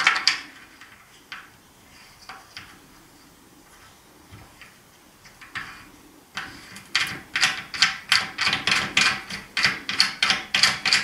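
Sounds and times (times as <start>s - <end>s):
screw scraping in strokes: 5.6s - 11.0s.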